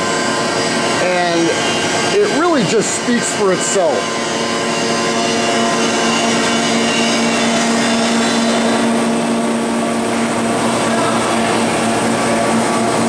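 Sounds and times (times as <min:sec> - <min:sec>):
machine hum with low whine: 0:00.0 - 0:13.0.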